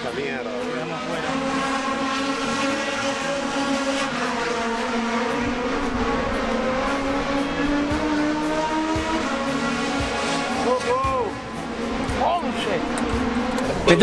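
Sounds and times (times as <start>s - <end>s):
racing car engines revving: 0.0s - 14.0s.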